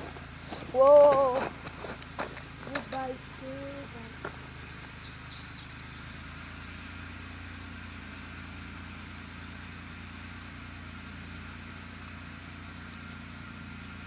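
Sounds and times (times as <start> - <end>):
steady low rumble: 0.0 - 10.8
bird chirping: 2.7 - 6.2, 9.7 - 10.5.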